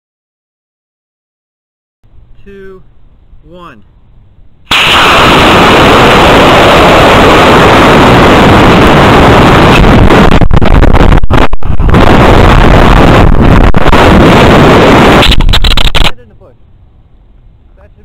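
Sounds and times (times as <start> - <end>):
wind rushing over microphone: 4.6 - 16.2
rocket motor rushing: 4.7 - 16.2.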